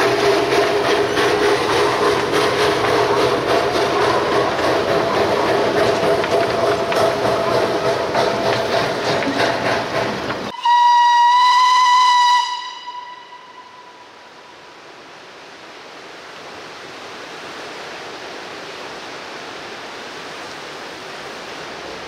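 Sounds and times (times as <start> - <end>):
steam locomotive whistle: 10.5 - 14.3
river rushing: 12.8 - 22.0.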